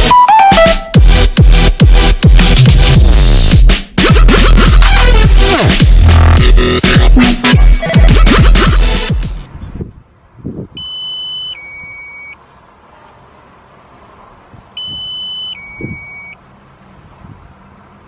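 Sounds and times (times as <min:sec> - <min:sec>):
two-tone electronic beep: 0:00.0 - 0:01.0, 0:10.8 - 0:12.4, 0:14.8 - 0:16.4.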